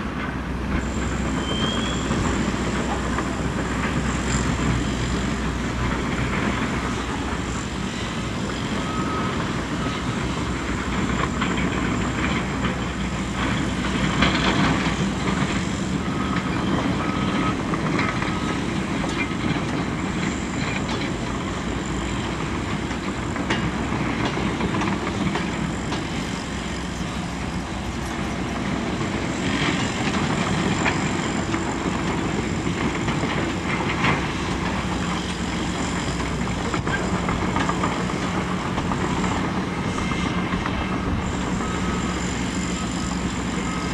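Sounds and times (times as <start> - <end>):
heavy diesel machinery working: 0.0 - 43.9
reversing alarm beeping: 0.8 - 43.9.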